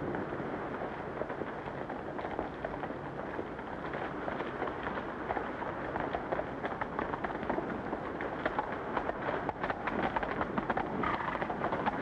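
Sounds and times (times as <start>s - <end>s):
horse hoofbeats on dirt road: 0.0s - 12.0s.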